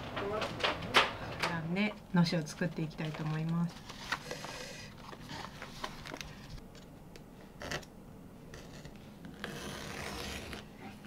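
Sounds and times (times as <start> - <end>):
paper rustling: 2.6 - 6.6.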